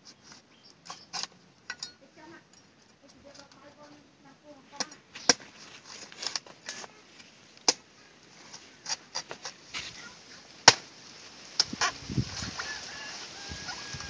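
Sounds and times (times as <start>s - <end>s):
cleaver chopping coconut husk: 10.6s - 10.9s.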